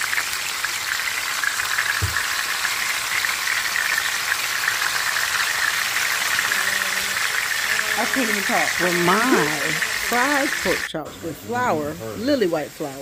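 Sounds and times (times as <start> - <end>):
pork chops sizzling in oil: 0.0 - 13.0
short low thump: 2.0 - 2.2.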